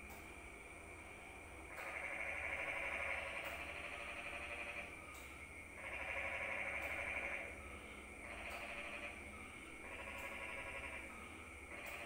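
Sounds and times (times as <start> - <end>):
faint low hum: 0.0 - 12.0
shrill trilling night chorus: 0.0 - 12.0.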